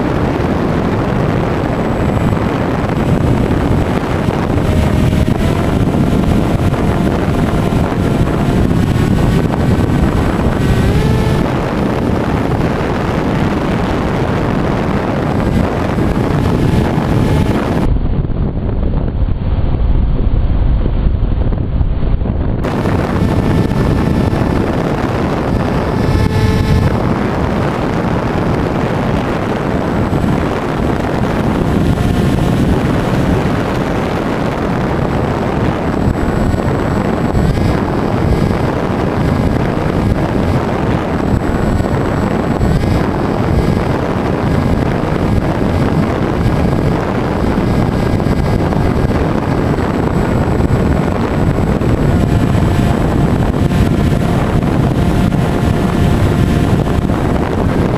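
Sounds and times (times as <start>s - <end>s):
electric motor and propeller whine: 0.0s - 19.3s, 21.4s - 57.9s
wind rushing over microphone: 0.0s - 57.9s.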